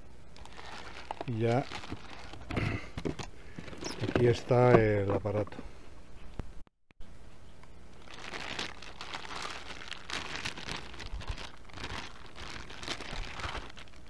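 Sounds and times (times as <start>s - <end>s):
plastic bag crinkling: 0.3s - 4.4s, 8.0s - 14.0s.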